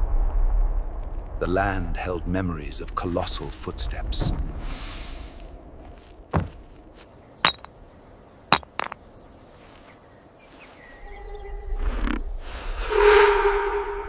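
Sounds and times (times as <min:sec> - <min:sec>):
stones knocking together: 0:06.0 - 0:07.8, 0:08.5 - 0:09.1.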